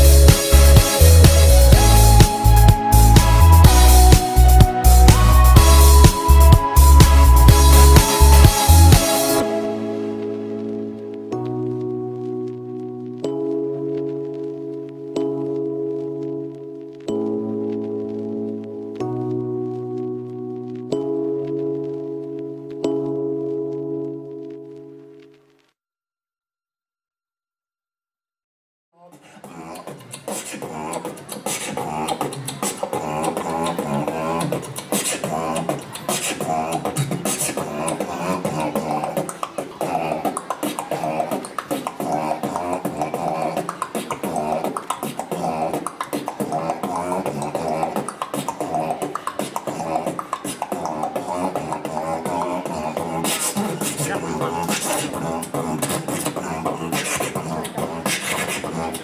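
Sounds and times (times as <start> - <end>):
man beatboxing: 0.0 - 9.6, 29.0 - 59.0.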